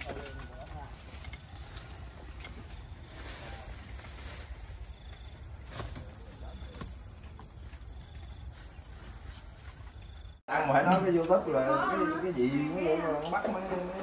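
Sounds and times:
insects droning: 0.0s - 10.4s
leaves rustling: 0.0s - 10.4s.

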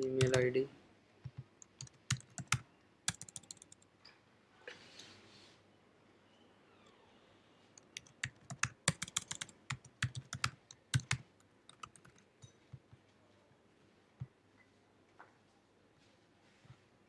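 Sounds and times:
typing on computer keyboard: 0.0s - 0.4s, 1.2s - 3.9s, 7.8s - 12.3s.

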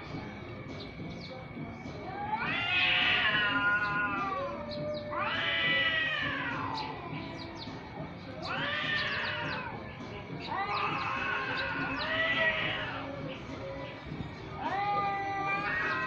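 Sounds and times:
cat yowling: 2.0s - 7.0s, 8.4s - 13.2s, 14.5s - 16.0s.

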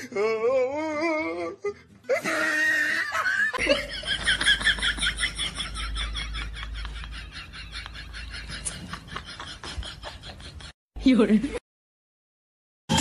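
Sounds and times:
person laughing: 2.1s - 10.8s.

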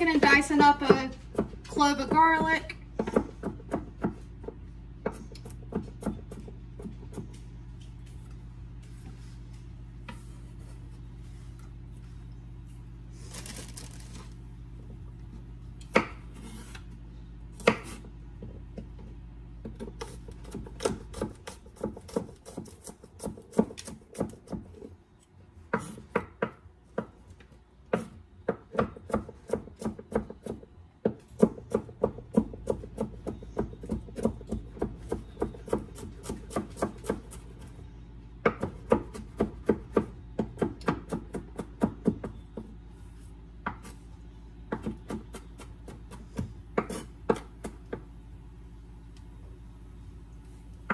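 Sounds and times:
knife chopping on wooden board: 0.1s - 7.4s, 17.6s - 18.1s, 19.6s - 24.8s, 27.9s - 37.5s, 44.7s - 48.0s.

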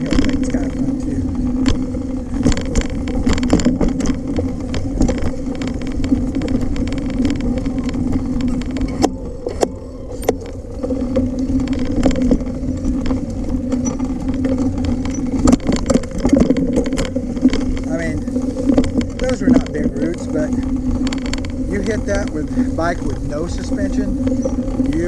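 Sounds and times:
bike rattles and knocks: 0.0s - 25.0s
bike tyre hum on dirt: 0.0s - 25.0s.

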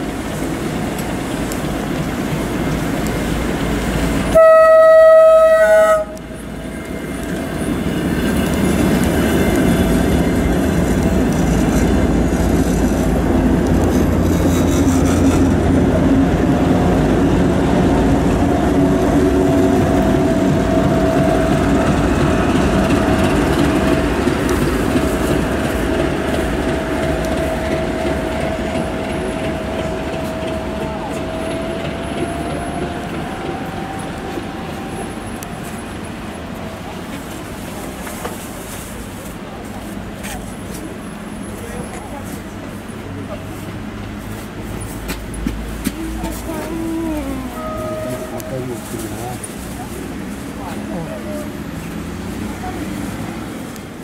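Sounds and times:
diesel locomotive rumbling past: 0.0s - 54.0s
locomotive horn blast: 4.3s - 6.3s, 32.4s - 35.8s, 47.3s - 49.2s.

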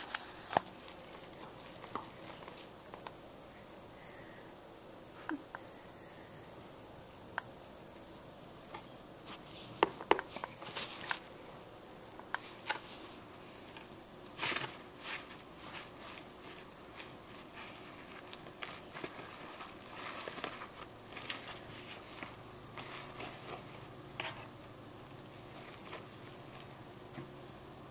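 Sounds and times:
cat rustling in cardboard box: 9.3s - 11.3s, 12.4s - 24.6s, 25.3s - 27.4s.

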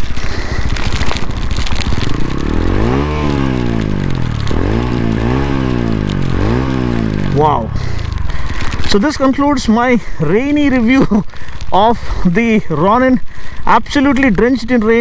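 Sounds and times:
motorcycle engine idling and revving: 0.0s - 11.6s.

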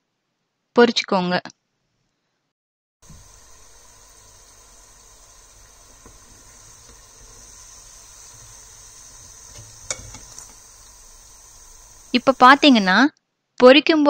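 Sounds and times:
bread deep-frying in bubbling oil: 3.0s - 13.0s
metal spoon clinking against pot: 9.6s - 10.5s.

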